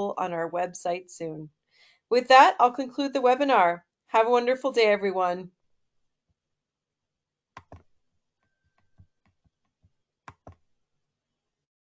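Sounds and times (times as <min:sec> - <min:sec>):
keyboard and mouse clicks: 0:07.6 - 0:07.9, 0:10.3 - 0:10.6.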